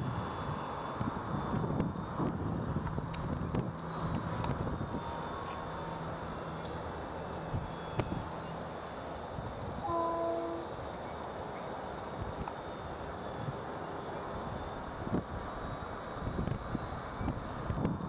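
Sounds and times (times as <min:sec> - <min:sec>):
wind on microphone: 0:00.0 - 0:05.1, 0:16.2 - 0:18.0
model plane motor drone: 0:00.0 - 0:10.8
horn tone: 0:09.8 - 0:10.7.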